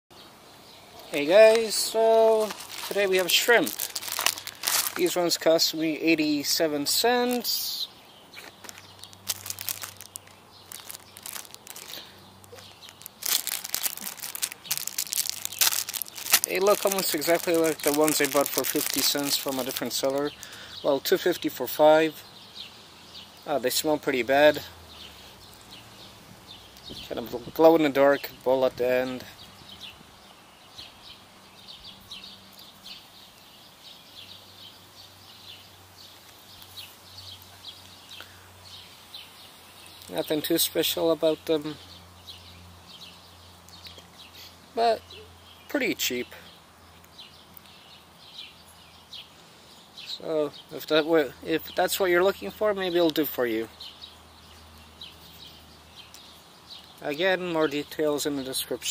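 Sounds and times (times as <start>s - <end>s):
birds chirping: 0.1s - 58.9s
plastic bag crinkling: 2.3s - 5.4s, 8.4s - 20.6s.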